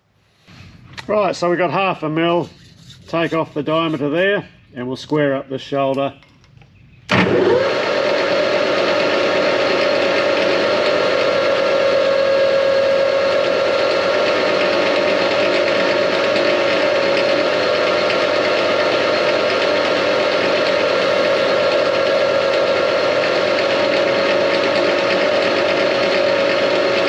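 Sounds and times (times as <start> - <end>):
lathe machine drone: 7.1 - 27.0.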